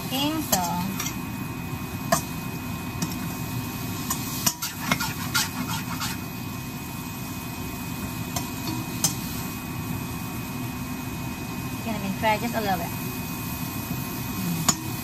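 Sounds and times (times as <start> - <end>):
steady low hum: 0.0 - 15.0
metal spatula scraping a pan: 4.0 - 6.3.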